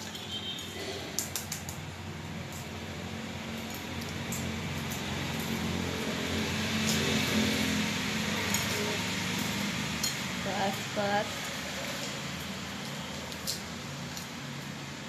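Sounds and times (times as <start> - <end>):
eggshell cracking and clicking: 1.2 - 1.9.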